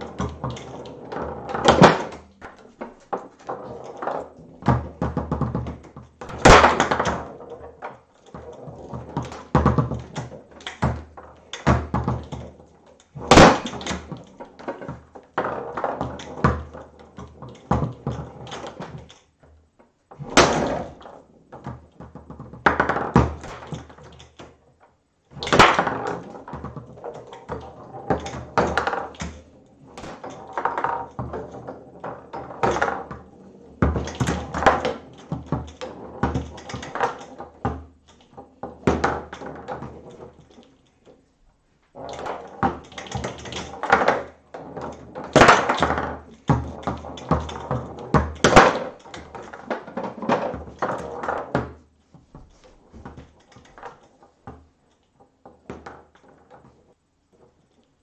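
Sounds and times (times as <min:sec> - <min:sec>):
foosball clicks and knocks: 0:00.0 - 0:19.4, 0:20.1 - 0:24.6, 0:25.3 - 0:41.3, 0:42.0 - 0:51.8, 0:52.4 - 0:57.9
loud foosball bang: 0:01.6 - 0:02.2, 0:06.3 - 0:07.3, 0:13.3 - 0:14.1, 0:20.2 - 0:21.0, 0:22.7 - 0:23.9, 0:25.4 - 0:26.2, 0:30.0 - 0:30.9.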